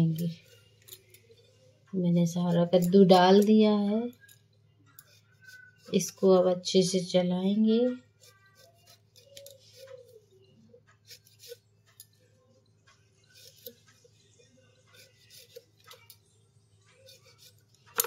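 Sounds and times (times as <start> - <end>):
metal spoon scraping a pan: 2.4 - 6.4, 11.0 - 12.2, 13.2 - 14.2, 14.9 - 16.2, 17.0 - 18.0.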